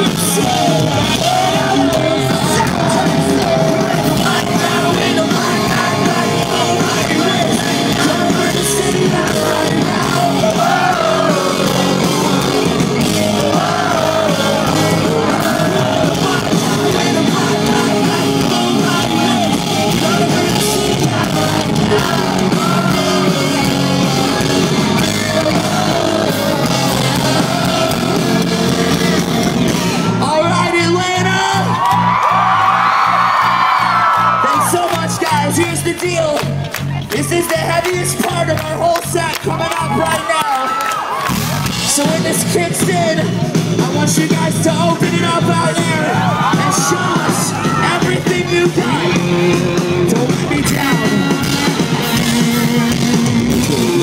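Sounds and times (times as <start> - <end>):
person singing: 0.0 - 29.4, 41.9 - 54.0
live rock band playing: 0.0 - 54.0.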